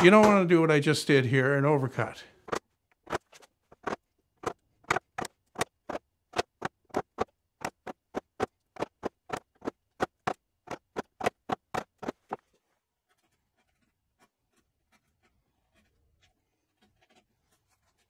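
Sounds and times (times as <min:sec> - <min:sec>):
chisel scratching and clicking: 0:13.0 - 0:18.0.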